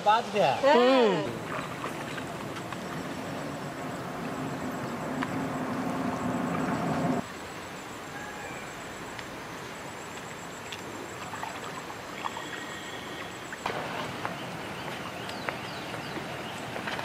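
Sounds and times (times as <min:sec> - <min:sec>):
steady outdoor hiss: 0:00.0 - 0:17.0
water sloshing and splashing: 0:01.3 - 0:07.2, 0:10.5 - 0:17.0.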